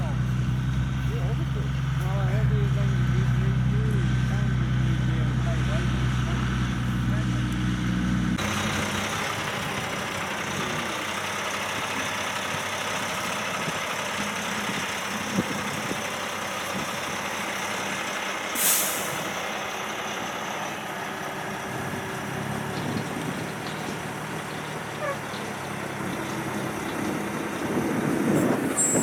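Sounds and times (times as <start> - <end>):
diesel truck engine running: 0.0 - 29.0
air brake hiss: 18.6 - 19.3.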